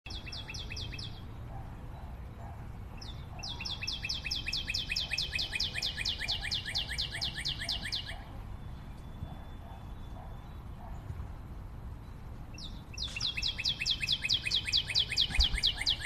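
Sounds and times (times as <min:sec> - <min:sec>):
cockatiel chirping: 0:03.4 - 0:08.2, 0:13.0 - 0:16.0.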